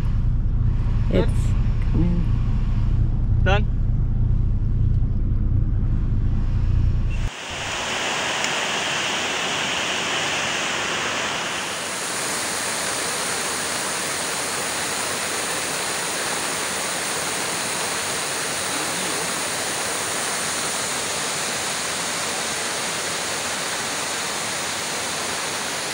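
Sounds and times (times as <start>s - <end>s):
boat engine hum: 0.0s - 25.9s.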